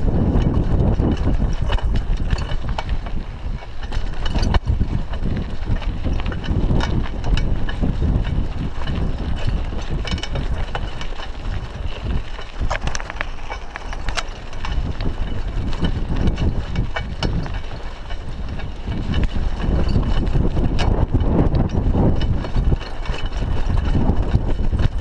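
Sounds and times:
bicycle rolling on dirt road: 0:00.0 - 0:25.0
bike clicks and rattles: 0:00.0 - 0:25.0
wind buffeting microphone: 0:00.0 - 0:25.0.

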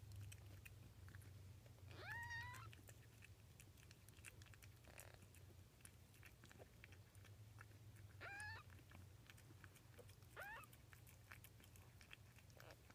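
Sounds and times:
kittens suckling wet clicking: 0:00.0 - 0:12.9
kitten mewing: 0:01.9 - 0:02.8, 0:08.2 - 0:08.8, 0:10.3 - 0:10.8.

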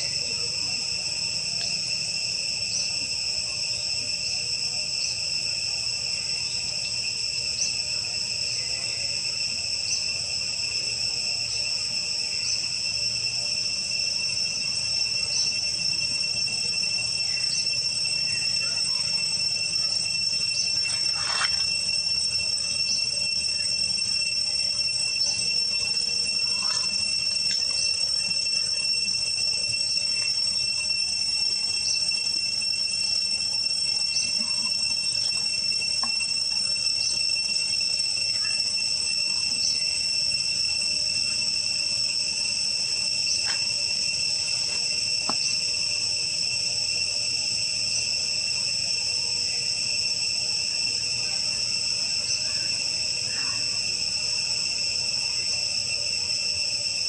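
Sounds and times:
insect chirps: 0:00.0 - 0:57.0
insects chirring: 0:00.0 - 0:57.0.

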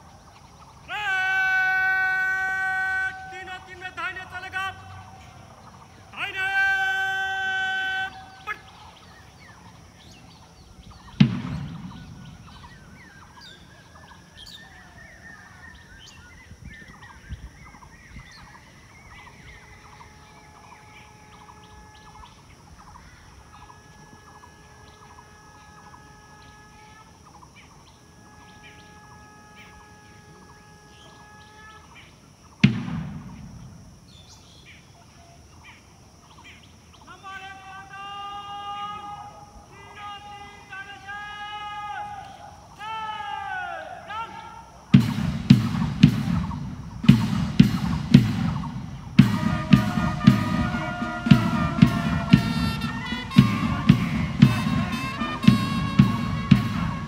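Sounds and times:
birds chirping: 0:00.0 - 0:57.0
sharp thumps: 0:11.2 - 0:12.7, 0:45.0 - 0:57.0.

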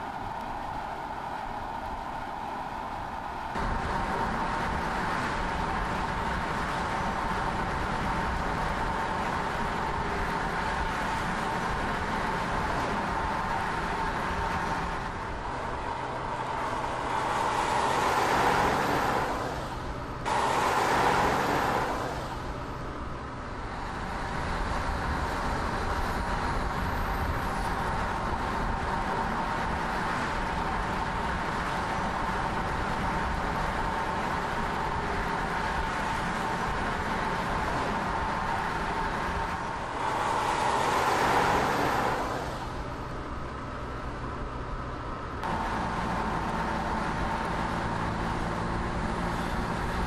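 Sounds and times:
tyres and wind rushing: 0:00.0 - 0:50.0.

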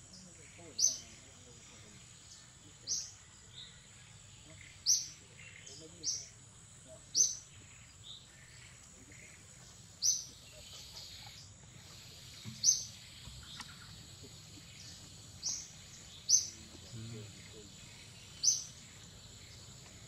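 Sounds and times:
faint insect hum: 0:00.0 - 0:20.0
sharp high bird chirps: 0:12.2 - 0:13.9, 0:14.8 - 0:16.7, 0:17.5 - 0:19.7.

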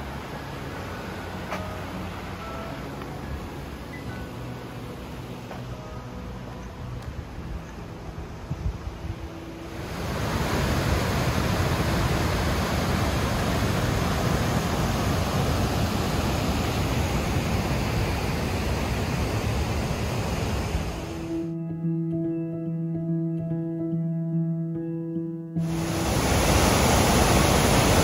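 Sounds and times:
rush of water: 0:00.0 - 0:05.8, 0:09.3 - 0:21.4, 0:25.6 - 0:28.0.

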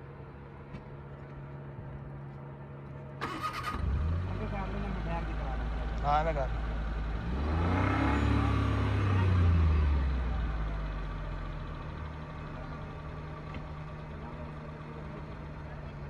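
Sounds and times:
car engine revving and idling: 0:03.3 - 0:16.0.

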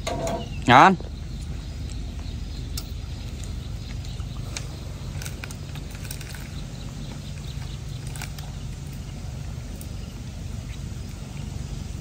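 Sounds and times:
steady low hum: 0:00.0 - 0:12.0
small clicks and ticks: 0:01.4 - 0:09.1.

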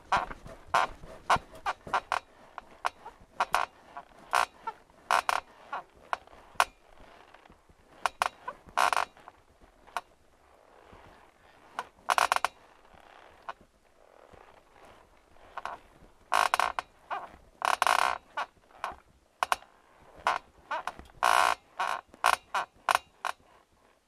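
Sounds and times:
metal bed frame squeaking: 0:00.1 - 0:09.3, 0:10.8 - 0:13.6, 0:14.4 - 0:19.6.

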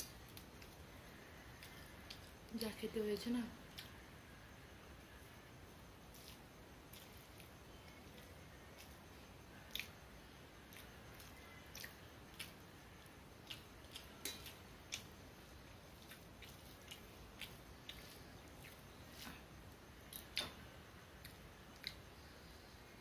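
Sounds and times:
faint steady hiss: 0:00.0 - 0:23.0
chewing clicks and smacks: 0:09.7 - 0:10.0, 0:10.7 - 0:12.6, 0:16.0 - 0:18.8, 0:21.2 - 0:22.0.

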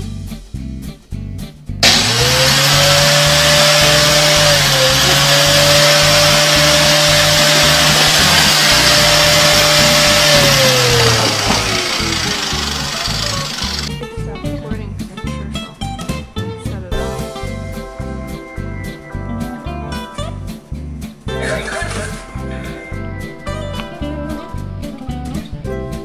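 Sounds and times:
electric motor whining: 0:01.8 - 0:13.9.

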